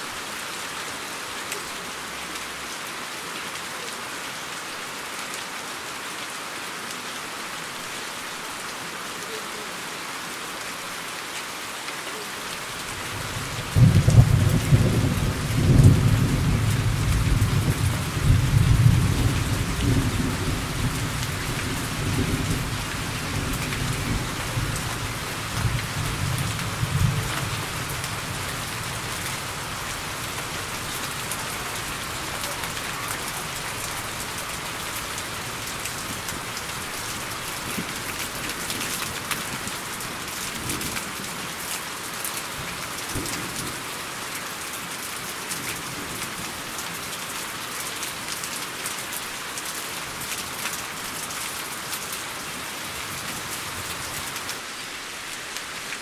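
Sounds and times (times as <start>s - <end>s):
steady rain: 0.0s - 56.0s
low rumble of thunder: 13.1s - 32.5s.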